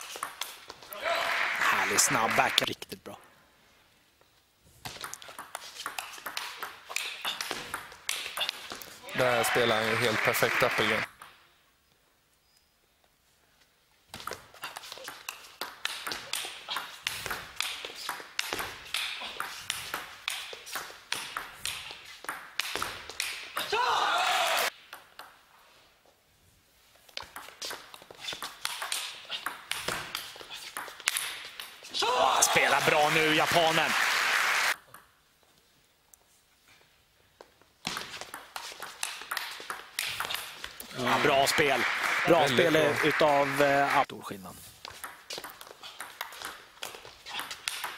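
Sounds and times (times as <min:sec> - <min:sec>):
audience applauding: 0:01.0 - 0:02.7, 0:09.2 - 0:11.1, 0:32.4 - 0:34.8, 0:40.9 - 0:44.0.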